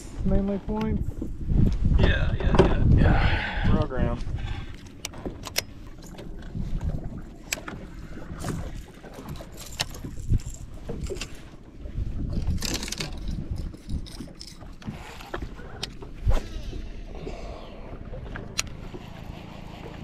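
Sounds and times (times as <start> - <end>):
wind buffeting microphone: 0.0 - 19.0
water slapping boat hull: 0.2 - 20.0
clicks and knocks of rod handling: 4.7 - 7.8, 8.4 - 11.6, 12.3 - 16.1.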